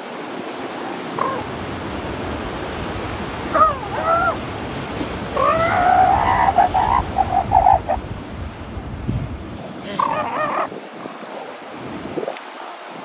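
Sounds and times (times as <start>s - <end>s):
surf wash: 0.0s - 13.0s
elephant seals calling: 1.1s - 1.6s, 3.4s - 4.6s, 5.2s - 8.0s, 9.6s - 11.6s.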